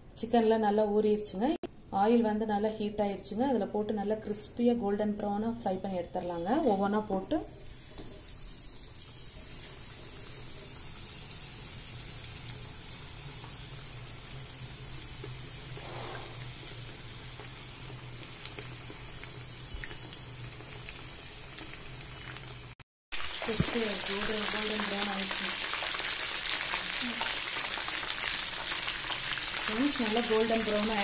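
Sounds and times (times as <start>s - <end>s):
chicken sizzling in hot oil: 7.6s - 31.0s.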